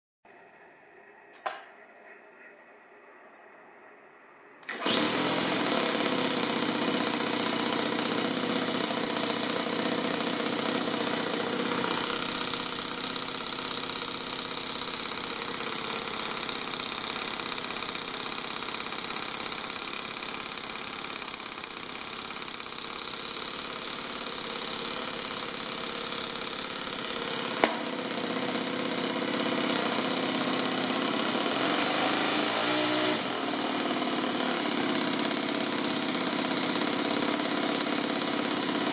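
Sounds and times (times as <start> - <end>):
model engine idling: 4.9 - 31.6, 33.4 - 38.9
sharp click: 27.6 - 27.9.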